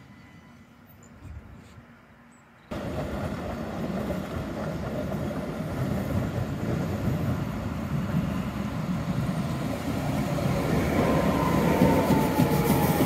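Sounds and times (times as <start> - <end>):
tram wheels rumbling on rails: 2.7 - 13.0.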